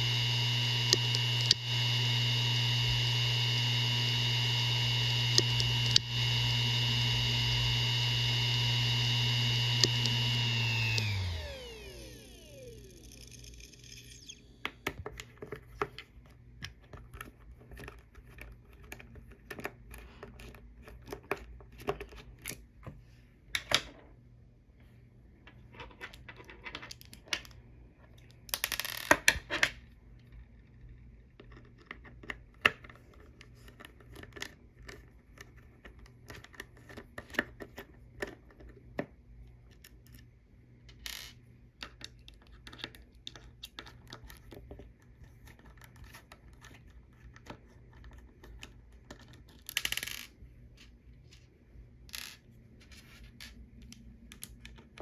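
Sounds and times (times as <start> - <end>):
screwdriver clicking and scraping: 0.0 - 14.4.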